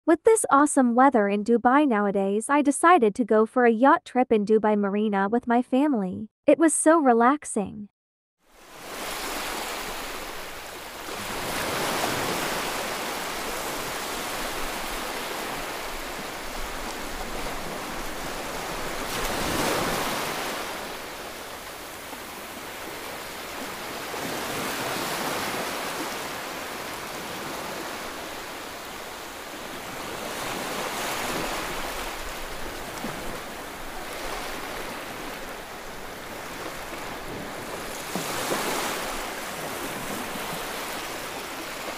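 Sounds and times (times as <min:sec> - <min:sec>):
wind and water rushing: 0:08.4 - 0:41.9.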